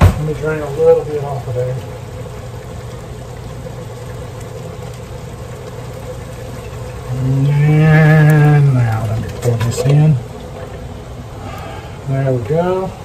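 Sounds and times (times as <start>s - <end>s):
liquid draining from can: 0.0s - 13.0s.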